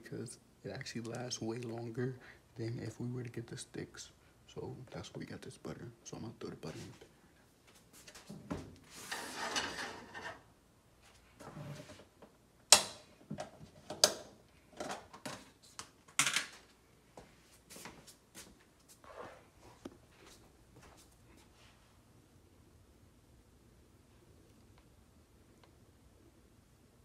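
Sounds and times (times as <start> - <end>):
plastic tub rustling and scraping: 8.1 - 10.4.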